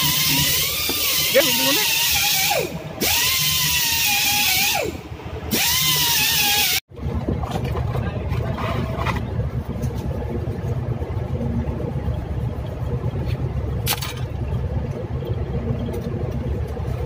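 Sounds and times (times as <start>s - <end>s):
rotary grinder whining: 0.0s - 6.8s
low steady rumble: 0.0s - 17.0s.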